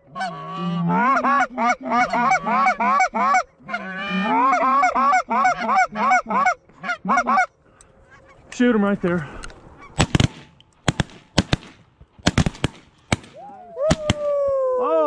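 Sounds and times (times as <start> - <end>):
goose call honks and clucks: 0.0 - 8.4.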